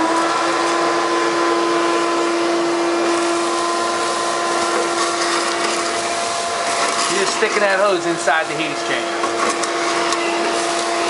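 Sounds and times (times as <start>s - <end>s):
vacuum cleaner whining: 0.0s - 11.0s.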